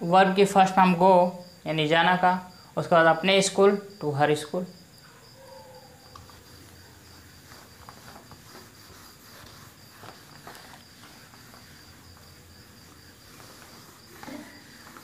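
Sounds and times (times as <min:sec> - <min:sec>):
insect trilling: 0:00.9 - 0:15.0
duster wiping a whiteboard: 0:05.9 - 0:15.0.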